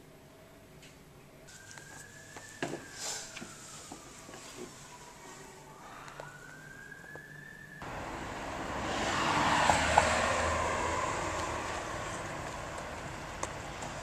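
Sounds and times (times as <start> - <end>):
vehicle passing: 7.8 - 14.0.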